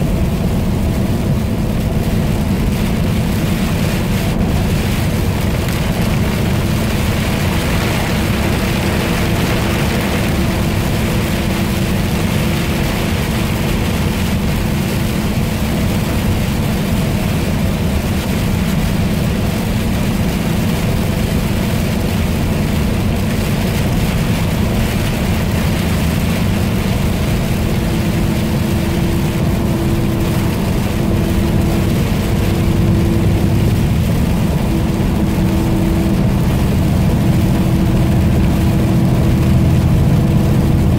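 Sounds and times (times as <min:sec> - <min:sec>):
engine and road drone: 0:00.0 - 0:40.9
tyres hissing on wet road: 0:00.0 - 0:40.9.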